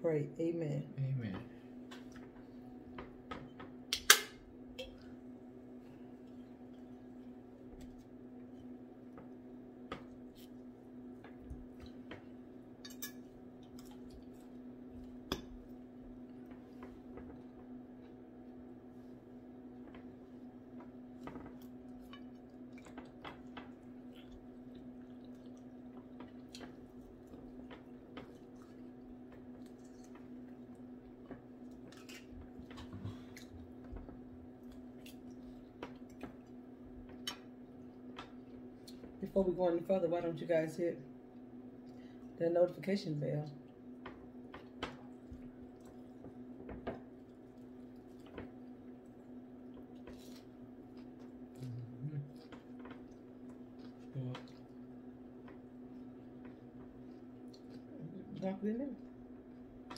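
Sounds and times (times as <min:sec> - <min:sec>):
person chewing food: 0:13.2 - 0:17.7, 0:19.8 - 0:39.2, 0:44.2 - 0:58.4.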